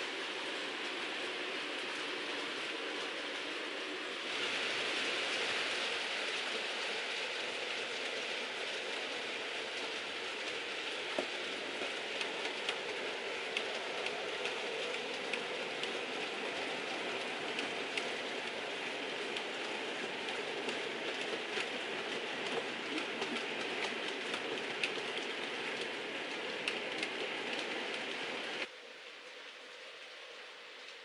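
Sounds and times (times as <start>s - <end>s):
model train rumbling on track: 0.0s - 28.7s
wheels ticking over rails: 5.9s - 28.7s.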